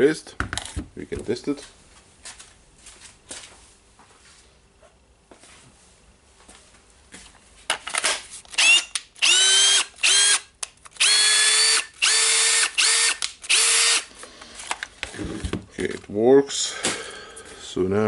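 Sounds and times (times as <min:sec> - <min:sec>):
drill motor whining: 0:08.5 - 0:10.4, 0:11.0 - 0:14.1.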